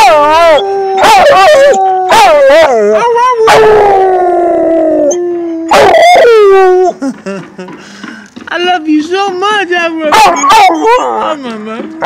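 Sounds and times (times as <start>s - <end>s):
dog howling: 0.0s - 7.0s, 10.1s - 11.4s.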